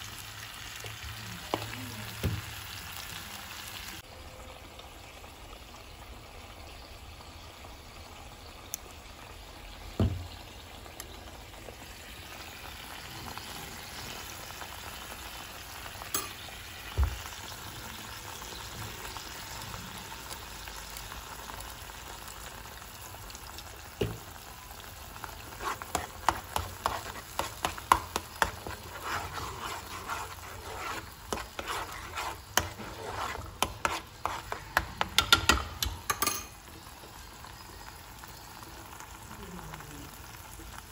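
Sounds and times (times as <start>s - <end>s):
sauce sizzling and bubbling in a pan: 0.0s - 40.9s
metal spoon scraping a pan: 25.4s - 36.6s.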